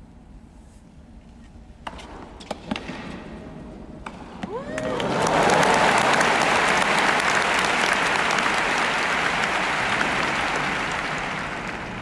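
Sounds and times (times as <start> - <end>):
crowd applauding: 4.5 - 12.0.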